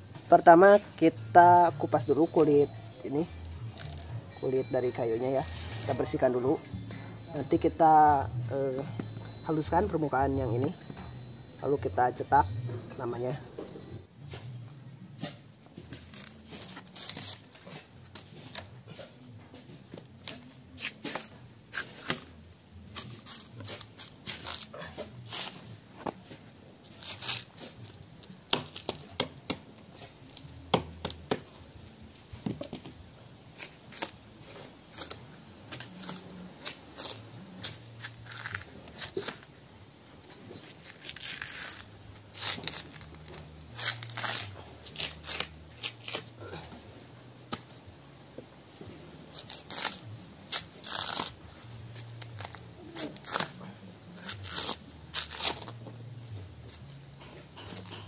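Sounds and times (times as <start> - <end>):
knife scraping bark off wood: 20.2 - 31.5, 33.6 - 39.5, 40.6 - 46.8, 49.3 - 53.6, 54.2 - 56.0.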